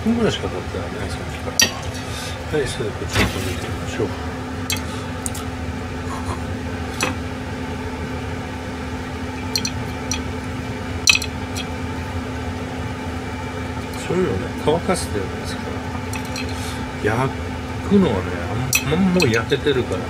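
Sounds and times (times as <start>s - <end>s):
appliance fan humming: 0.0s - 20.0s
utensils clinking on grill rack: 1.6s - 2.0s, 4.7s - 5.4s, 9.4s - 10.3s, 11.1s - 11.7s, 16.0s - 16.8s, 18.7s - 19.6s.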